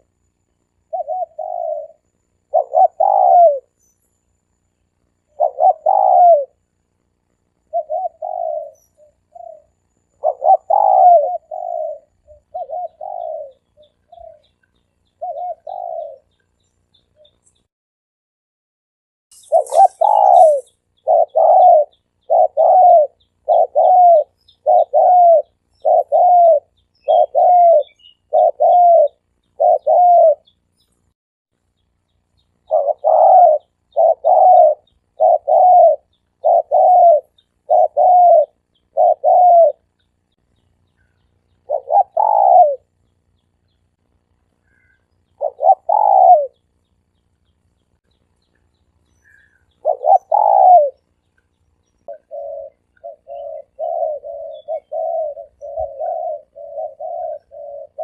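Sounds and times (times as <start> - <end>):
dove cooing: 0.0 - 3.8, 5.1 - 6.8, 7.6 - 17.4, 19.4 - 30.6, 32.6 - 40.0, 40.9 - 43.0, 44.6 - 46.8, 49.2 - 51.2, 52.0 - 58.0.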